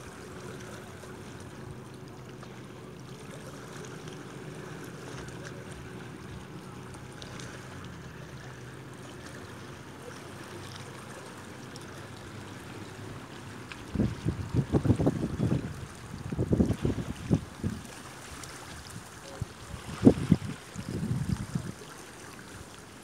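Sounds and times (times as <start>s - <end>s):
waves lapping over rocks: 0.0s - 23.0s.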